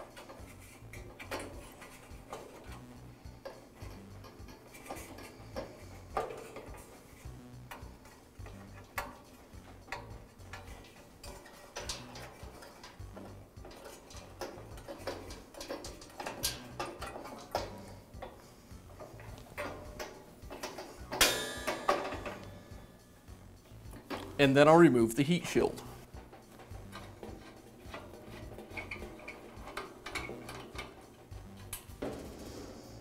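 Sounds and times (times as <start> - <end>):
rasping rattle: 0.0 - 24.4, 25.8 - 33.0
wires clicking against metal: 0.0 - 33.0.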